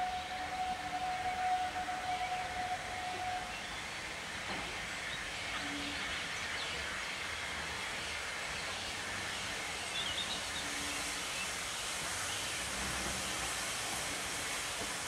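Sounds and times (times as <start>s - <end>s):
steam whistle: 0.0s - 3.6s
hiss of steam: 0.0s - 15.0s
steam locomotive running: 0.0s - 15.0s.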